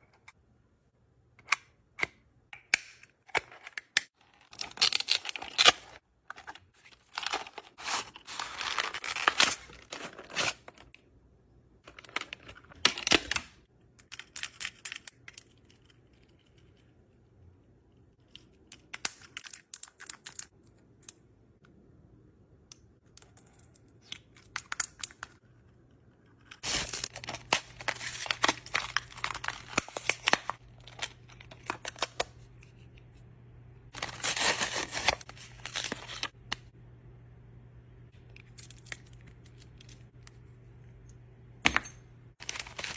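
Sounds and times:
paper and plastic crinkling: 0:04.5 - 0:10.9, 0:26.6 - 0:32.0, 0:34.0 - 0:36.4.

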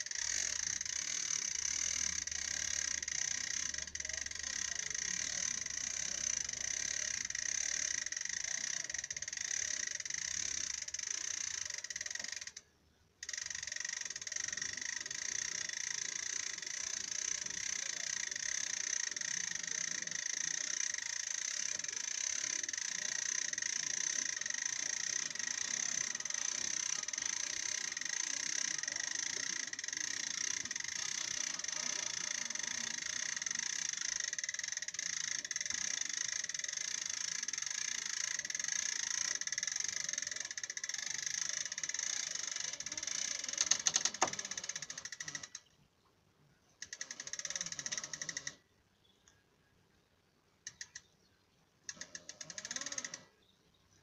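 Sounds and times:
hand winch rattling: 0:13.2 - 0:45.7, 0:46.8 - 0:48.6, 0:51.8 - 0:53.4.

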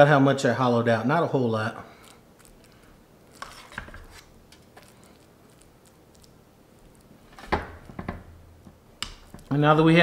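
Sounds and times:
spoon scraping skillet: 0:02.0 - 0:07.4.

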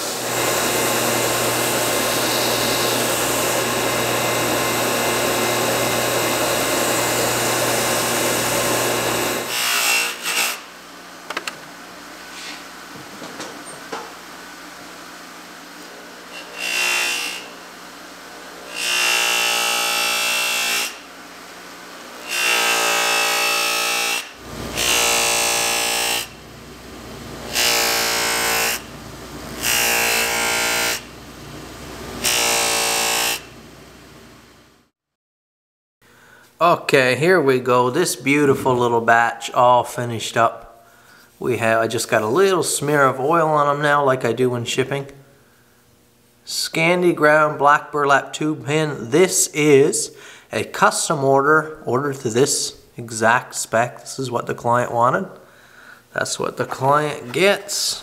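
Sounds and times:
buffing wheel whirring on blade: 0:00.0 - 0:10.2
belt grinder grinding knife: 0:00.1 - 0:10.7, 0:27.5 - 0:28.9, 0:29.5 - 0:31.1.

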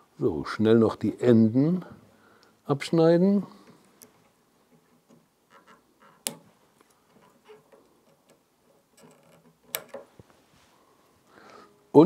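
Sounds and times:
handling clicks and rustles: 0:03.6 - 0:10.6.

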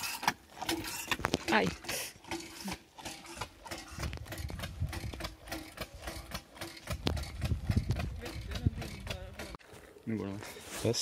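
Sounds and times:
steam engine chuffing: 0:01.7 - 0:09.5.

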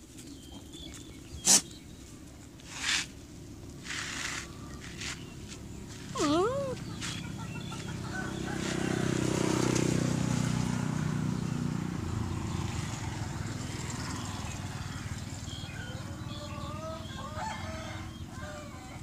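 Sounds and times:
vehicle engine passing: 0:03.7 - 0:18.7
chickens clucking: 0:05.9 - 0:09.8, 0:15.6 - 0:18.6.

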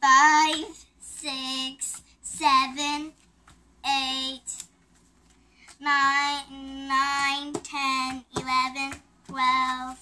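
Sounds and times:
girl counting in sing-song voice: 0:00.0 - 0:03.2, 0:03.8 - 0:04.6, 0:05.8 - 0:10.0.

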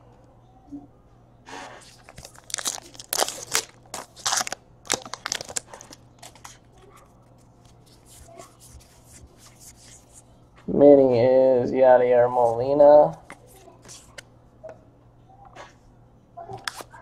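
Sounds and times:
cards rustling: 0:01.8 - 0:06.7, 0:12.3 - 0:14.2
foil wrapper crinkling: 0:01.8 - 0:06.7.

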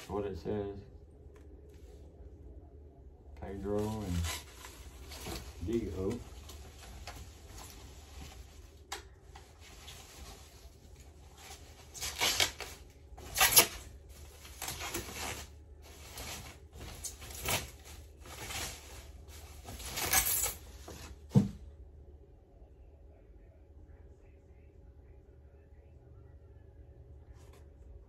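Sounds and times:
packing wrap rustling: 0:03.7 - 0:21.0.

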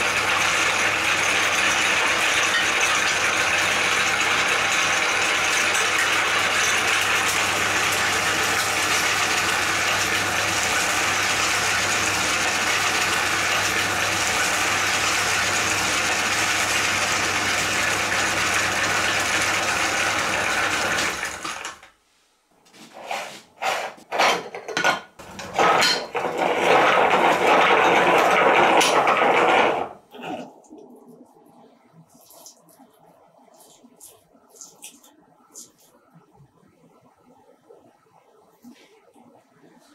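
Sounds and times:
electric meat grinder running: 0:00.0 - 0:21.8, 0:25.2 - 0:30.0.

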